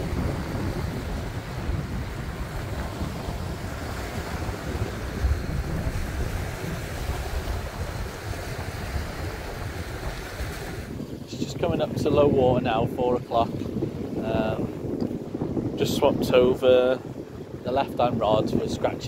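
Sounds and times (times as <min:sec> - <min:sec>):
small waves breaking on sand: 0:00.0 - 0:12.0
wind buffeting microphone: 0:00.0 - 0:19.0.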